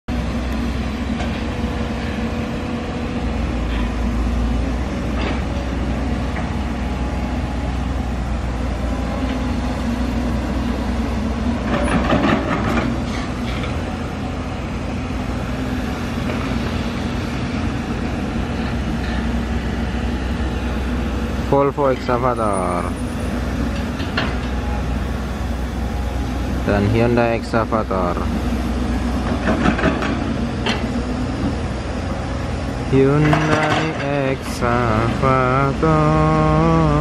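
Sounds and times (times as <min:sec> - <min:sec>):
diesel engine running: 0:00.1 - 0:37.0
metallic clanking: 0:33.0 - 0:34.3.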